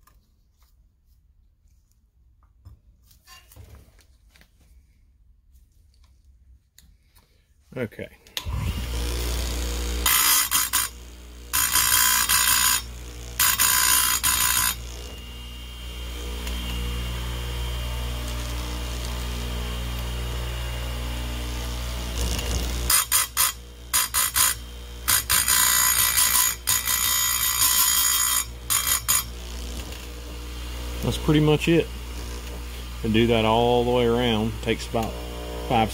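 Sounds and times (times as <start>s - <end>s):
harsh high grinding: 8.4s - 35.9s
sharpener motor humming: 8.4s - 35.9s.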